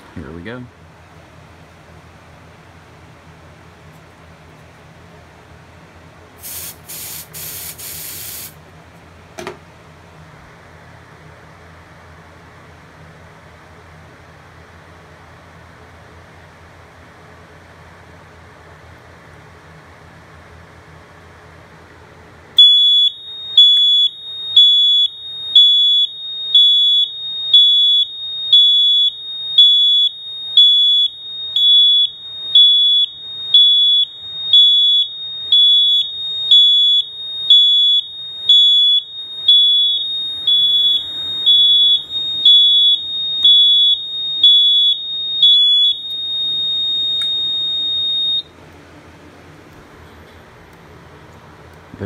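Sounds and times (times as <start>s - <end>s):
fire alarm horn pulsing: 22.6s - 48.5s
steady alarm tone: 22.6s - 48.5s.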